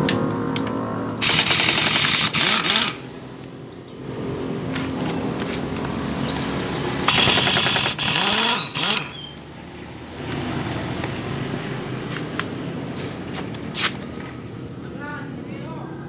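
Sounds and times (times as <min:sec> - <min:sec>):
impact wrench rattling: 0:01.2 - 0:03.0, 0:07.1 - 0:09.2.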